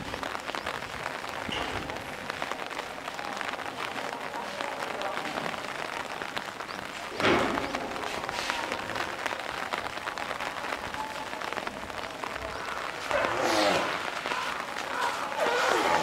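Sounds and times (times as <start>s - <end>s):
heavy rain pattering: 0.0s - 16.0s.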